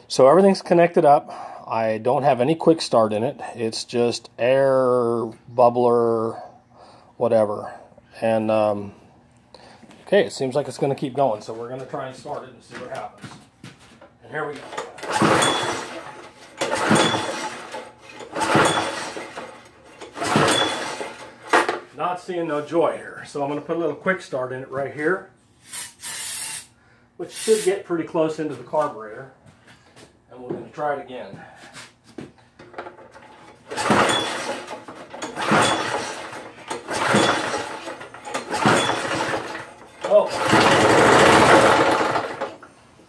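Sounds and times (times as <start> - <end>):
recoil starter pulled: 14.5 - 21.8, 32.6 - 42.7
small engine cranking: 14.7 - 21.4, 33.2 - 42.6.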